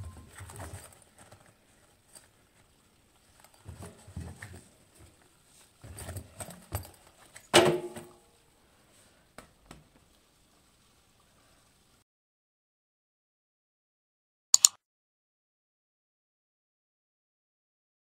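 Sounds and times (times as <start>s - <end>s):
small clicks: 14.6s - 14.8s.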